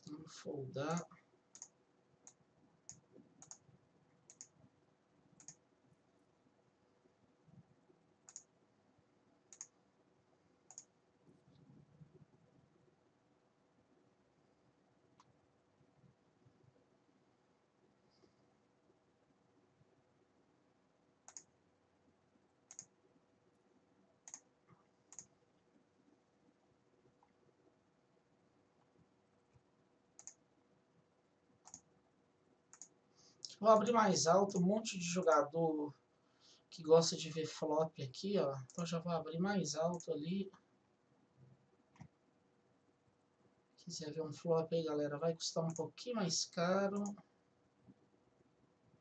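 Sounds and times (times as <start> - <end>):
computer mouse clicks: 1.0 - 3.7, 4.3 - 4.6, 5.4 - 5.6, 8.2 - 8.5, 9.5 - 9.8, 10.7 - 12.3, 21.2 - 21.6, 22.7 - 23.0, 24.2 - 25.4, 30.2 - 30.4, 31.6 - 31.9, 32.7 - 33.6, 41.4 - 42.2, 45.7 - 45.9, 47.0 - 47.2.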